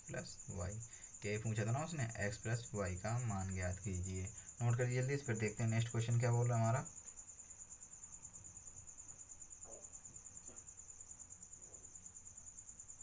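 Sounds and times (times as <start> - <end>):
insect trilling: 0.0 - 13.0.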